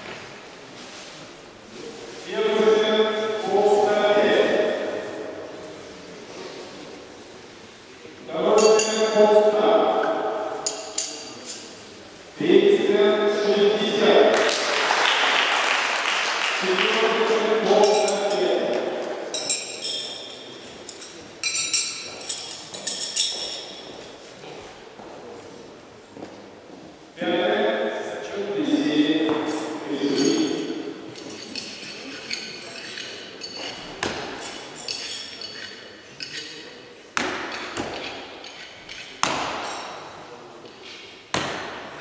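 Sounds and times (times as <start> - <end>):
metal knives clinking: 8.5 - 9.2, 10.6 - 11.8, 17.7 - 18.7, 19.3 - 23.9, 29.4 - 36.8, 37.5 - 40.1
light metallic clinks: 10.6 - 11.7, 19.3 - 24.0
knives striking targets: 37.2 - 40.0, 41.3 - 41.9.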